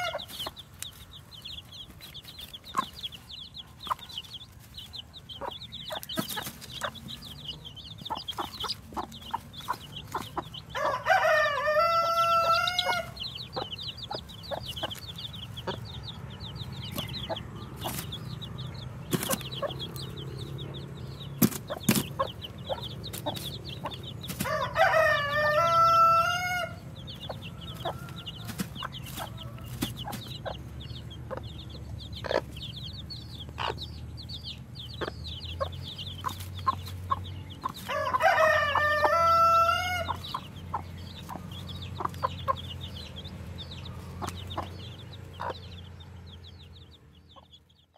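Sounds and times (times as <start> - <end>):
chicks peeping: 0.0 - 47.9
rooster crowing: 10.7 - 13.2, 24.4 - 26.8, 37.9 - 40.2.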